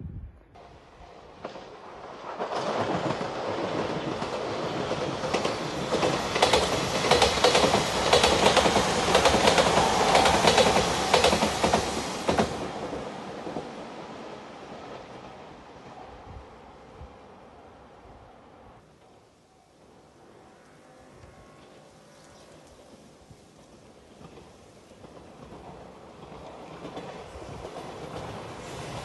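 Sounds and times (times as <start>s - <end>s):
electric train passing at speed: 0.0s - 29.0s
wheels clacking over rail joints: 1.1s - 13.9s, 21.6s - 29.0s.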